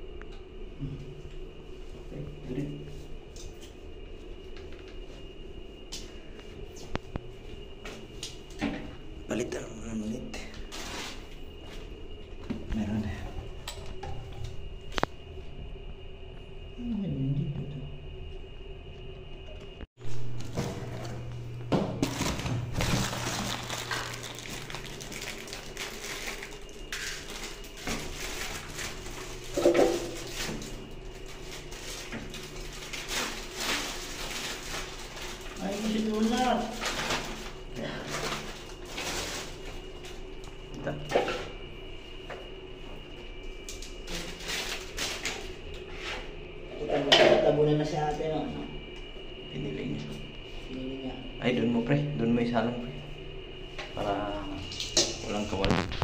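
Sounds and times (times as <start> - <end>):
plastic wrapping crinkling: 22.0 - 40.0.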